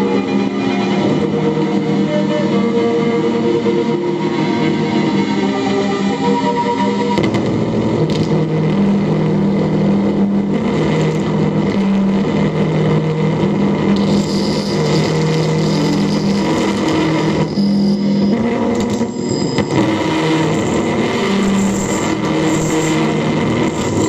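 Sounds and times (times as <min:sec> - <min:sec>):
dense electronic noise wash: 0:00.0 - 0:24.0
low droning tones: 0:00.0 - 0:24.0
thin high tone: 0:14.1 - 0:22.8.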